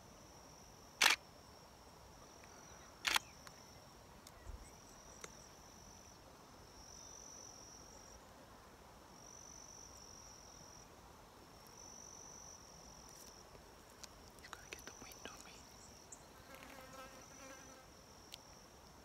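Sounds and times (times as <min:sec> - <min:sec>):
faint clicks: 0:02.4 - 0:03.6.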